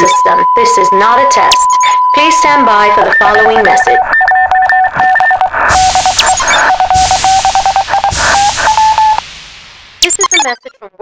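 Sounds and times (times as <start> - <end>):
electronic tones beeping: 0.0 - 9.2, 10.0 - 11.0
static hiss: 5.5 - 10.2.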